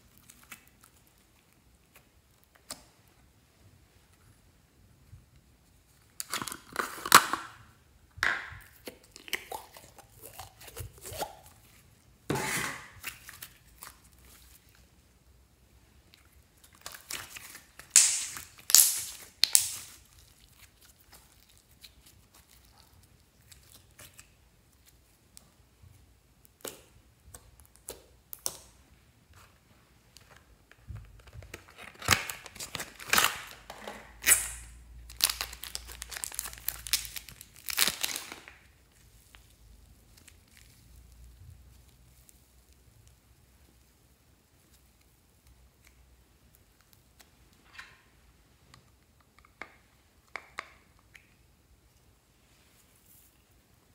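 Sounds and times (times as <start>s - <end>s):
slime squishing: 8.6s - 15.0s, 15.8s - 29.7s, 34.2s - 47.6s
plastic wrapping crinkling: 30.2s - 43.0s.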